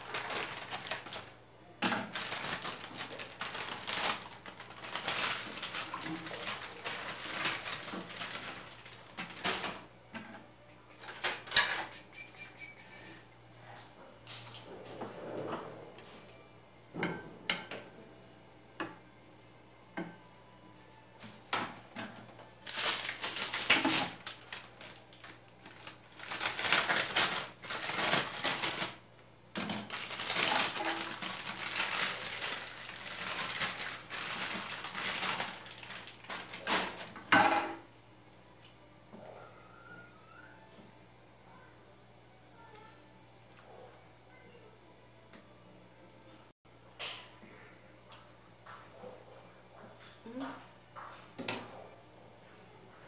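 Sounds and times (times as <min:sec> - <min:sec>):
plastic bag crinkling: 0:00.0 - 0:09.9, 0:22.6 - 0:37.3.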